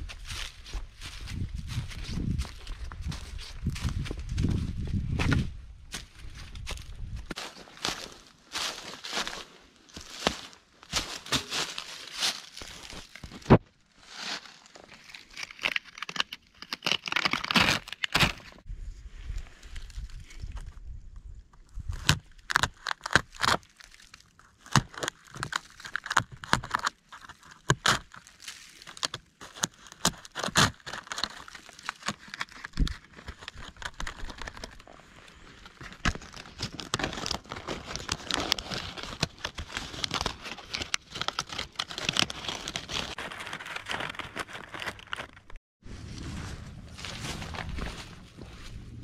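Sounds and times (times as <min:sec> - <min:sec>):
bark cracking and tearing: 0:14.8 - 0:18.6, 0:21.7 - 0:35.0, 0:35.6 - 0:45.6.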